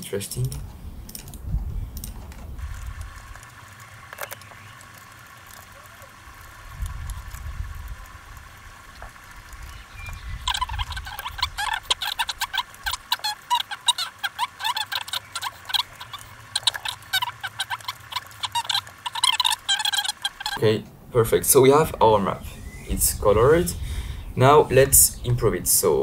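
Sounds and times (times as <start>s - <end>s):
clicks: 0.3s - 9.8s.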